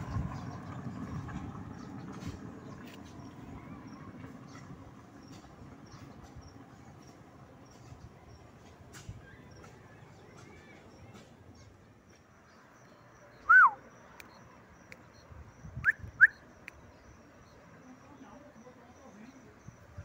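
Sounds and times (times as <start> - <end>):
faint outdoor background noise: 0.0 - 20.0
bird whistled calls: 13.3 - 13.8, 15.8 - 16.8.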